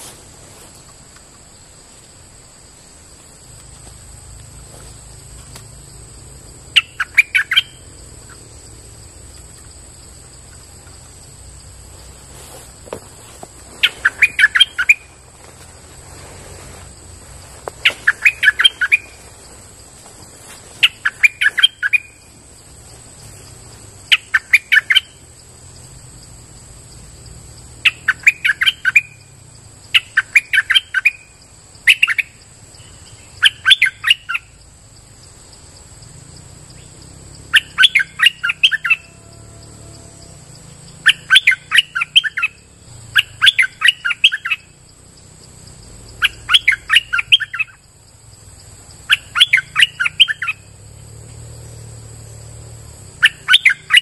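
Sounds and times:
bird singing rapid notes: 6.6s - 9.8s, 13.7s - 15.3s, 17.4s - 25.6s, 27.7s - 34.6s, 36.7s - 54.0s.

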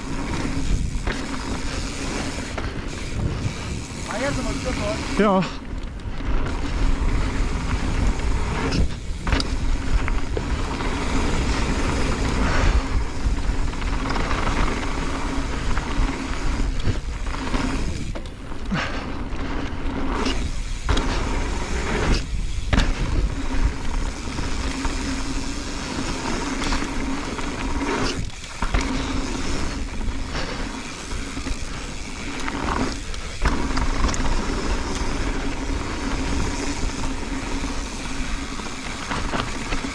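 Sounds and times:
wind on microphone: 0.0s - 5.1s
bike tyres rolling on gravel: 0.0s - 39.9s.

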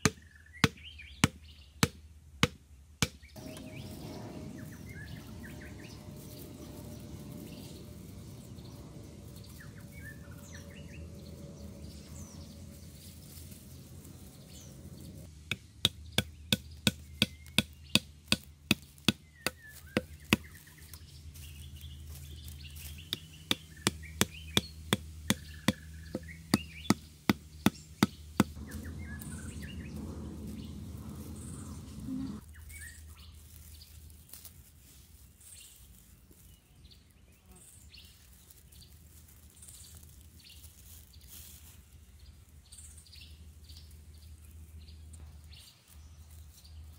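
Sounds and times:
bamboo pounding a stake: 0.0s - 3.3s, 15.5s - 20.6s, 23.0s - 28.6s
birds chirping: 0.0s - 34.0s.

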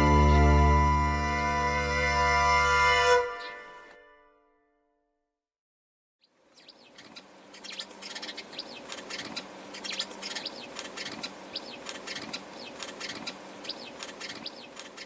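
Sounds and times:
sparrows chirping: 6.2s - 15.0s
sharp clicks: 7.7s - 15.0s.

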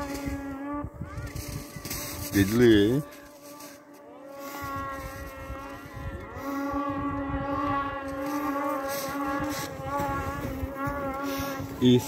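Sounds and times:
snowmobile engines whining: 0.0s - 12.0s.

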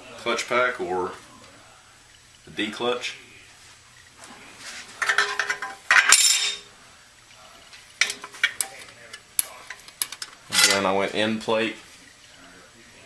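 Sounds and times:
metal plates clinking: 5.0s - 6.7s, 8.0s - 10.9s.

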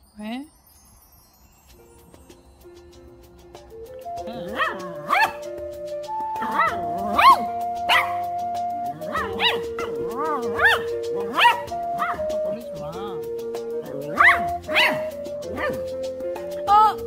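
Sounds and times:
background music with held notes: 0.0s - 17.0s
small dog yipping: 4.2s - 5.6s, 6.4s - 12.3s, 13.8s - 16.9s.

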